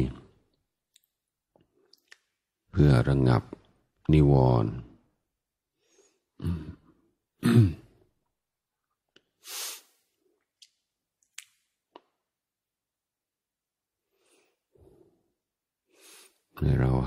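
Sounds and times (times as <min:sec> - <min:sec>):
man speaking: 0:00.0 - 0:00.4, 0:02.7 - 0:05.0, 0:16.6 - 0:17.0
breath: 0:05.8 - 0:06.4, 0:14.1 - 0:15.3, 0:15.9 - 0:16.4.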